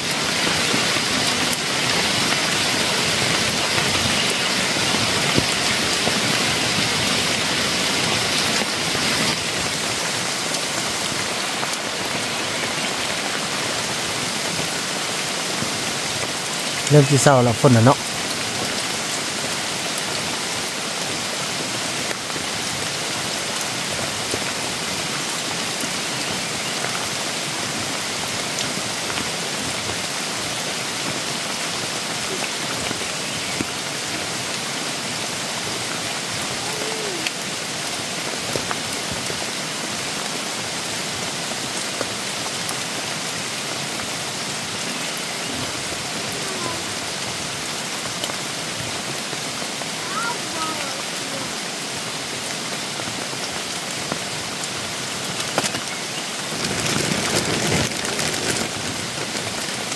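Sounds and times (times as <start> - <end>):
raindrops ticking: 0.0 - 21.1, 53.4 - 59.9
steady rain hiss: 0.0 - 59.9.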